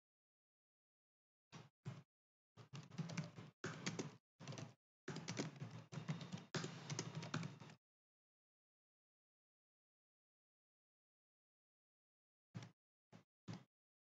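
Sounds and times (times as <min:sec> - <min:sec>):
typing on computer keyboard: 0:02.8 - 0:07.8.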